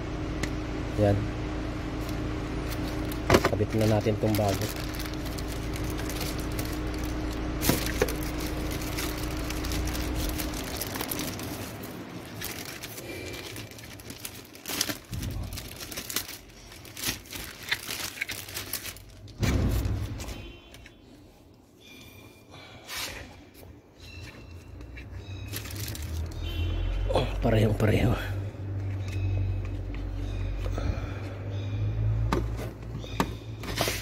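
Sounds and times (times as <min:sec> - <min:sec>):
low steady hum: 0:00.0 - 0:34.0
plastic wrapping crinkling and tearing: 0:02.6 - 0:20.4, 0:25.3 - 0:26.5.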